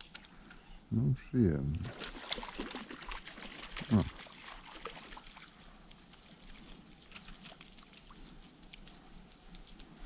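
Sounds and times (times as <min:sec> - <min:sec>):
small stream running: 0:00.0 - 0:10.0
small clicks and ticks: 0:05.6 - 0:10.0.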